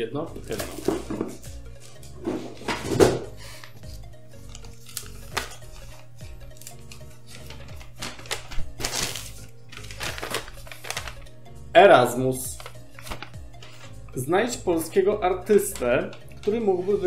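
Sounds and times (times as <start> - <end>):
quiet background music: 0.0 - 17.0
paper rustling and crinkling: 0.5 - 11.3, 12.5 - 14.0.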